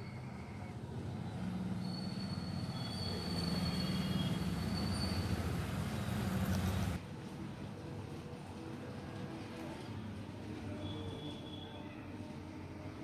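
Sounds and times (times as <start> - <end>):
thin high squealing tones: 1.7 - 5.6, 10.7 - 12.0.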